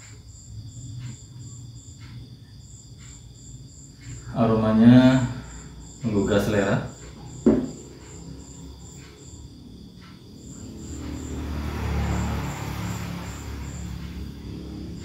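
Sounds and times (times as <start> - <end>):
cricket chirping: 0.0 - 15.0
short thump: 7.4 - 7.8.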